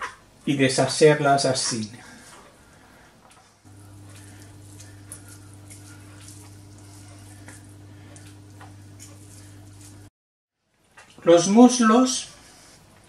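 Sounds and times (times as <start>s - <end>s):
steady low hum: 3.7s - 10.1s.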